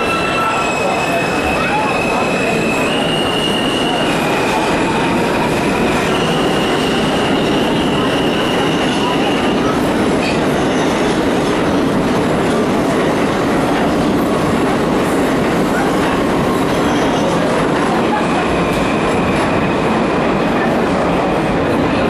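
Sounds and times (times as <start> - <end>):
faint high wheel squeal: 0.0 - 5.2
subway train rumbling: 0.0 - 22.0.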